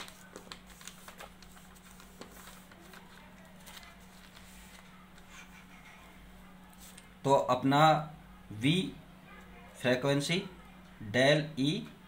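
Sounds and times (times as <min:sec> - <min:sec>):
paper rustling and tapping: 0:00.0 - 0:05.3
faint steady hum: 0:00.0 - 0:12.0.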